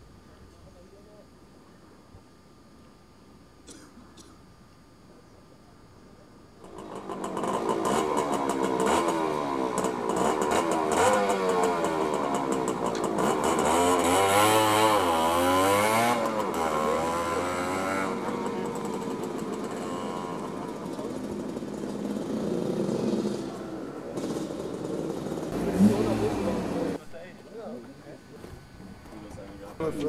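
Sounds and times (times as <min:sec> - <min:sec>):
motorcycle engines revving: 0:06.6 - 0:27.0.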